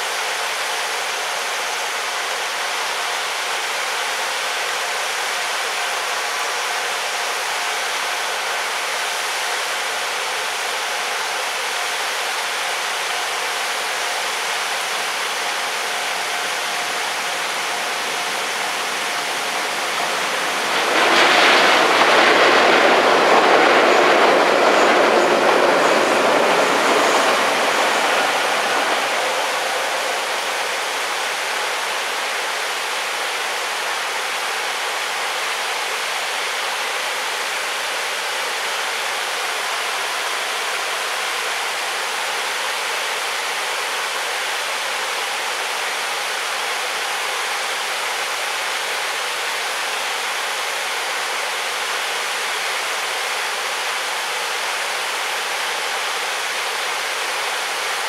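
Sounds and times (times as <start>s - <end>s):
steady rushing background: 16.0s - 32.2s.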